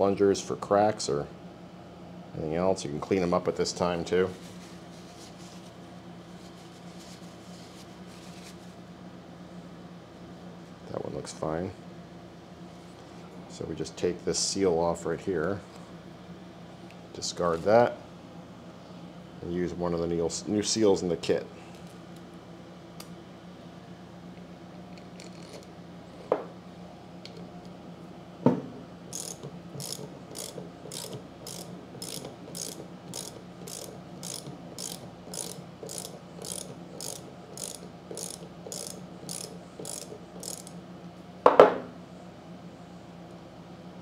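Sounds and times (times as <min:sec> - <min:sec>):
socket ratchet clicking: 0:29.1 - 0:40.8.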